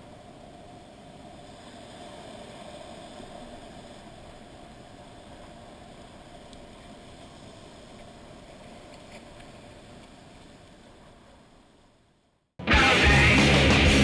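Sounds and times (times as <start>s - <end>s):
loud rock music with guitar: 12.6s - 14.0s.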